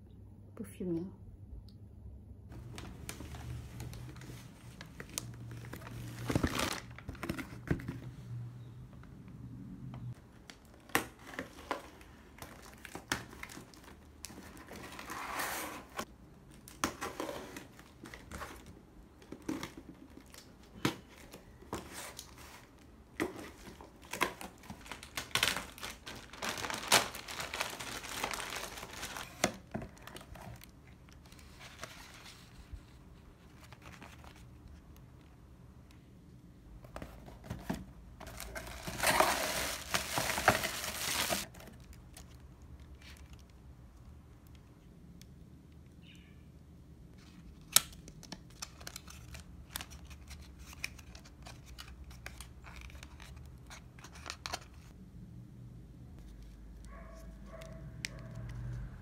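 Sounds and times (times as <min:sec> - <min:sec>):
cardboard rustling and scraping: 0:14.3 - 0:16.1, 0:16.9 - 0:20.4, 0:36.8 - 0:41.8.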